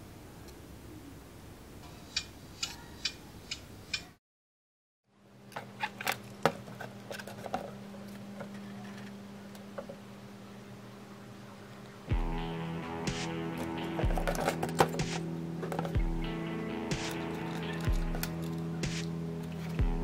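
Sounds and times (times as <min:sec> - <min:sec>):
steady low hum: 0:05.1 - 0:20.0.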